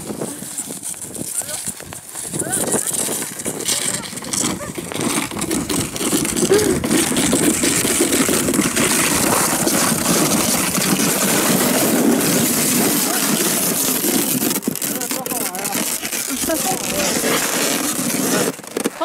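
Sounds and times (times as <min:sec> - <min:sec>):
plastic sled scraping over snow: 0:00.0 - 0:19.0.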